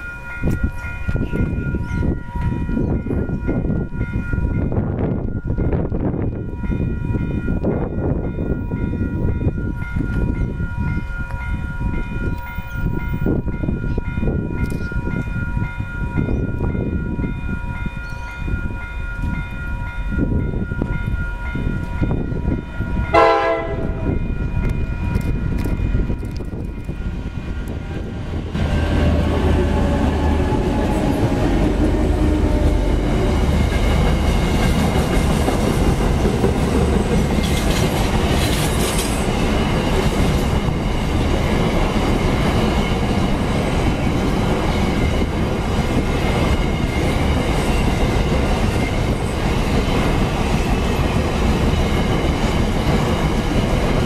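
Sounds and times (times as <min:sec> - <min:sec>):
freight train rumbling: 0:00.0 - 0:54.0
train horn blast: 0:23.1 - 0:24.2.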